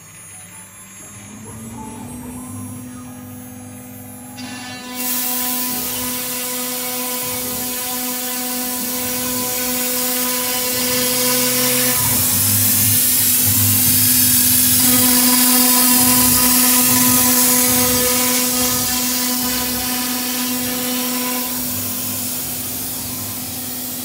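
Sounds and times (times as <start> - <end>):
router spindle whining: 0.0 - 24.0
router bit cutting with hiss: 1.0 - 24.0.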